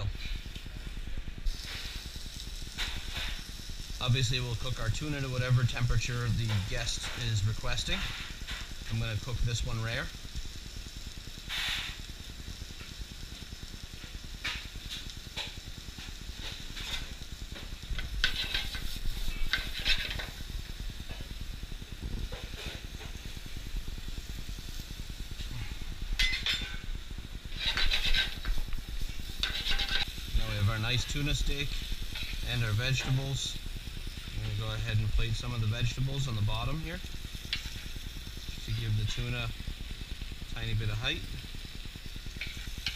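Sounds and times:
food sizzling on a grill: 0:00.0 - 0:42.9
gas burners rumbling: 0:00.0 - 0:42.9
pan clatter: 0:26.2 - 0:26.8, 0:27.5 - 0:28.7, 0:29.4 - 0:31.2.

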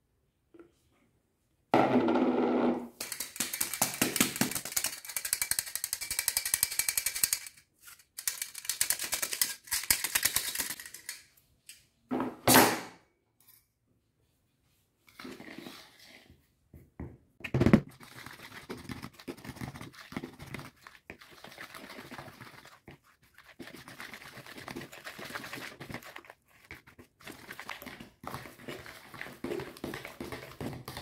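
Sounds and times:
sieve rattling while sifting: 0:03.0 - 0:11.1.

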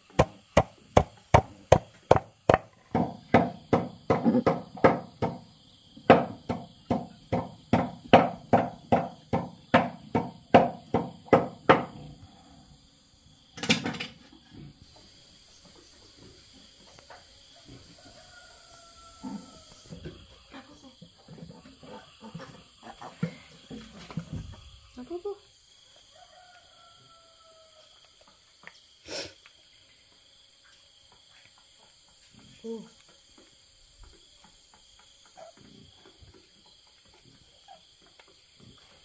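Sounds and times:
knife chopping on wooden board: 0:00.2 - 0:05.4
insects shrilling: 0:28.8 - 0:29.8.

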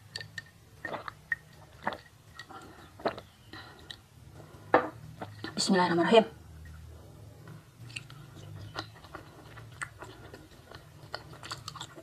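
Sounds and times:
person gulping water: 0:00.0 - 0:04.0.

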